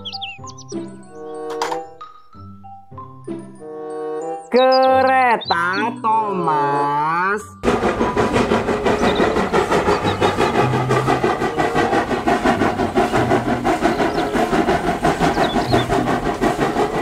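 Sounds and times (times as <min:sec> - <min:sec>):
steam locomotive exhaust beating: 0:07.6 - 0:17.0.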